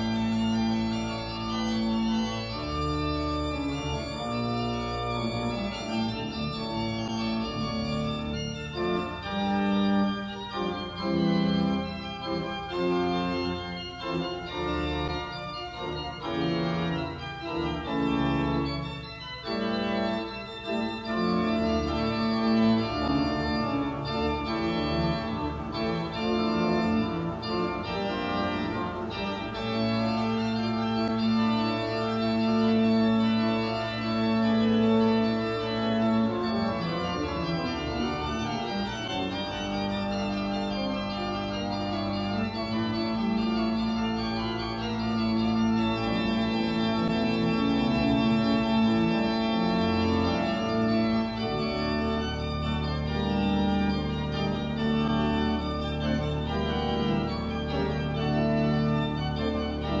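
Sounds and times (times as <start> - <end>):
organ playing sustained chords: 0.0 - 60.0.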